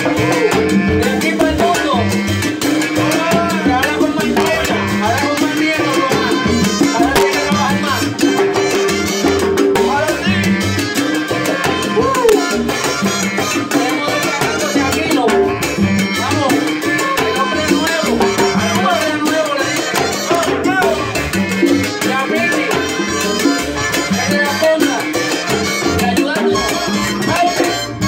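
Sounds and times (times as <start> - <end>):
salsa band playing: 0.0 - 28.0
lead singer singing: 2.9 - 8.3, 21.9 - 27.8.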